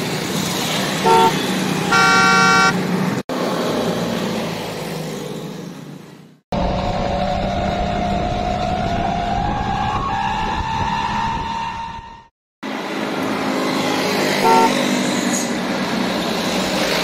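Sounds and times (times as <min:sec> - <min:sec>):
vehicle engine: 0:00.0 - 0:10.4.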